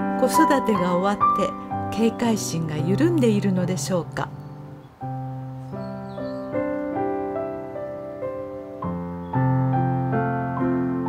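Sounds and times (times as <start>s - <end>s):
gentle piano music: 0.0s - 11.0s.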